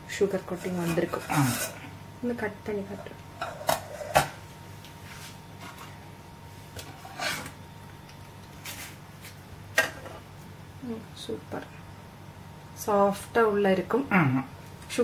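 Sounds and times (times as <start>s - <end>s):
crockery scraping: 0.4s - 1.9s, 6.8s - 7.6s.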